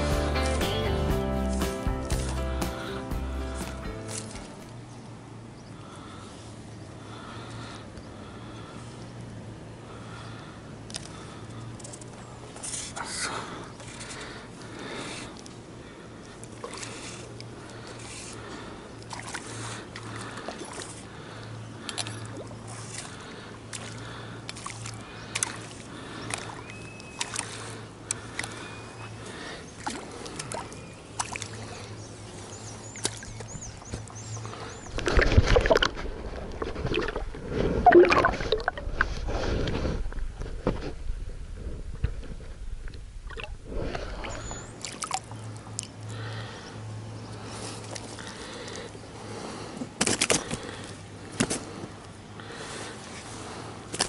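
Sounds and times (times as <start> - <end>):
underwater churning and splashing: 34.8 - 40.4, 43.0 - 45.4.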